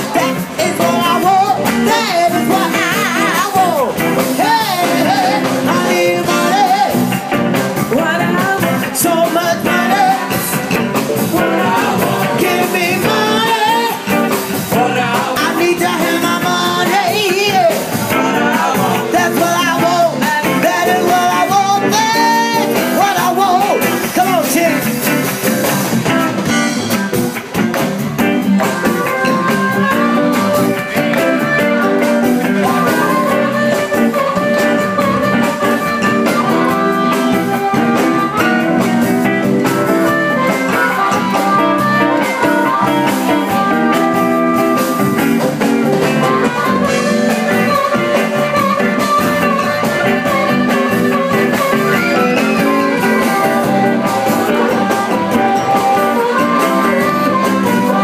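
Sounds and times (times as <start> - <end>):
drum kit: 0.0 - 58.0
electric guitar: 0.0 - 58.0
harmonica playing held notes: 28.4 - 58.0.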